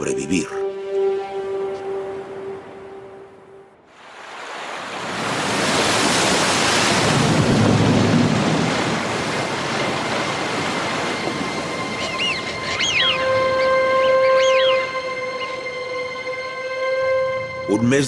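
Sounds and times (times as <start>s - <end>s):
meltwater pouring into sea: 3.9s - 11.8s.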